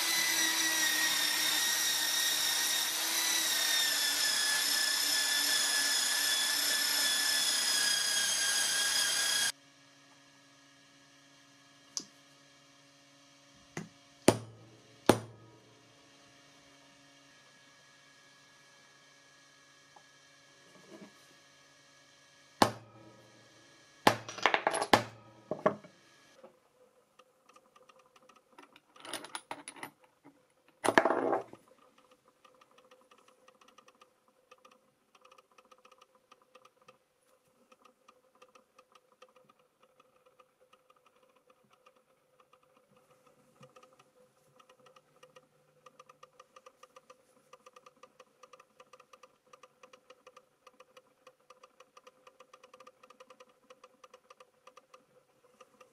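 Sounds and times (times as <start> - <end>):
light rapid ticking: 31.8 - 55.9.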